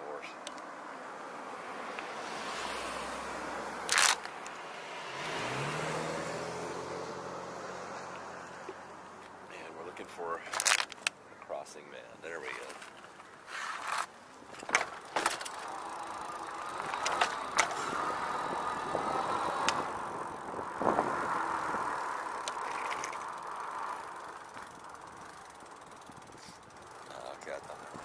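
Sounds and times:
bike knocking and rattling: 10.0s - 11.4s, 12.4s - 19.8s, 22.3s - 28.0s
tyres rolling on pavement: 12.4s - 28.0s
electric bike motor whining: 15.0s - 27.2s.

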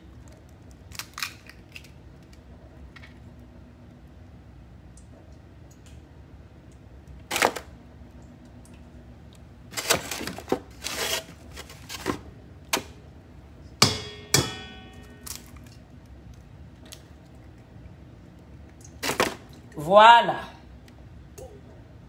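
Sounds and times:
egg knocking on metal bowl: 13.8s - 15.2s.

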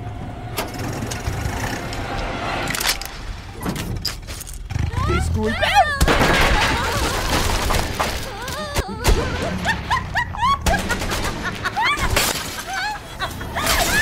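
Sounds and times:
dramatic cartoon music: 0.0s - 4.0s
crash of something shattering: 6.1s - 8.4s, 9.2s - 13.0s.

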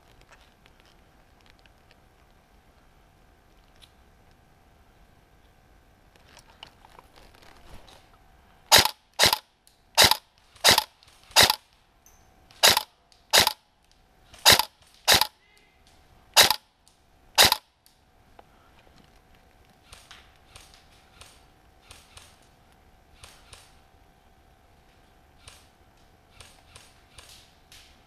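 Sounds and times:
airsoft rifle single shots: 8.7s - 9.4s, 10.0s - 11.6s, 12.6s - 13.6s, 14.4s - 15.3s, 16.4s - 16.6s, 17.4s - 17.6s.

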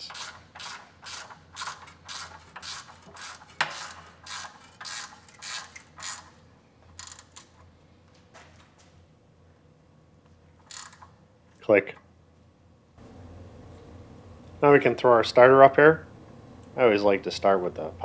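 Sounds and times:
ratcheting wrench: 0.0s - 6.4s, 7.0s - 7.6s, 10.6s - 11.1s.

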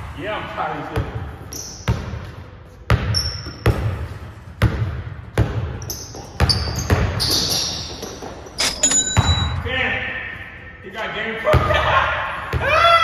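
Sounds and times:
sneakers squeaking on floor: 1.0s - 4.1s, 5.4s - 9.6s.

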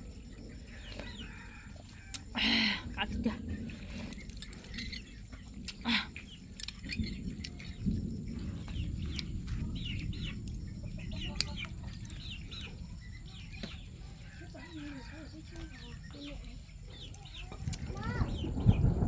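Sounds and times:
chickens clucking: 8.4s - 18.5s.

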